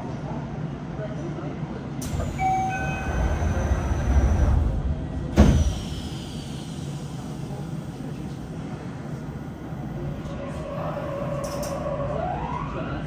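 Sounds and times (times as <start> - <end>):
train low hum: 0.0 - 13.0
sliding doors shutting with thud: 2.0 - 6.0.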